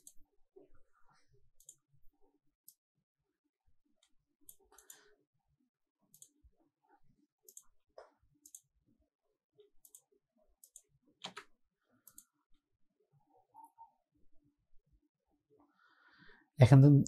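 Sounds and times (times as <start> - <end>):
computer mouse clicks: 0.0 - 0.2, 1.6 - 1.9, 4.0 - 5.1, 6.1 - 6.4, 7.4 - 8.7, 9.6 - 12.4.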